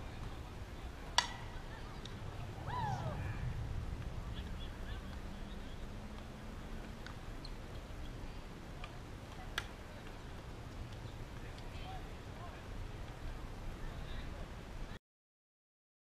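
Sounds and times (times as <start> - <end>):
murmur of voices: 0.0 - 15.0
bat hitting softball: 1.1 - 2.2
short falling cry: 2.6 - 3.5.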